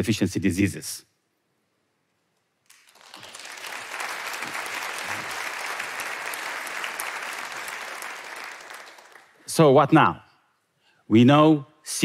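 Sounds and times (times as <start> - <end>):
audience applauding: 2.7 - 9.4.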